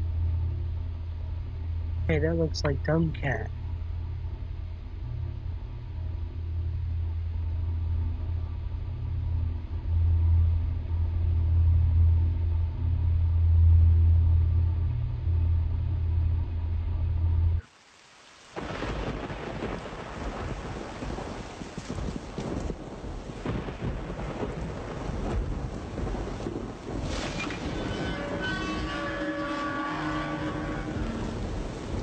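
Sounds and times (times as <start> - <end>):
deep low rumble: 0.0 - 17.6
rain falling: 17.6 - 32.0.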